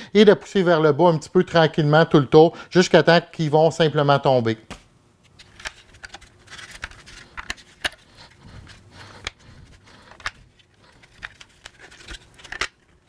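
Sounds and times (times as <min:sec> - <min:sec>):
soft handling noise: 0:04.7 - 0:13.0.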